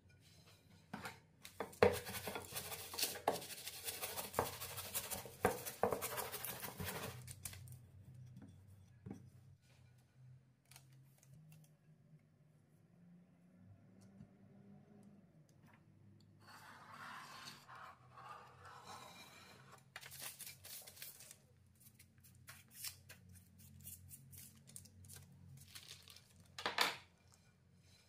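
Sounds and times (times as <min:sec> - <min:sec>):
kitchen scraping and scratching: 0:00.0 - 0:10.0, 0:16.4 - 0:28.0.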